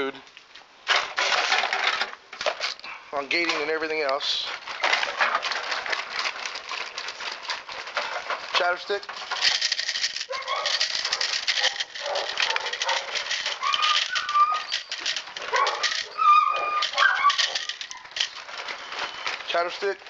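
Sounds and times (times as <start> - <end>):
chatter stick clattering: 0.9 - 20.0
puppies squealing: 10.3 - 11.0, 11.6 - 19.4.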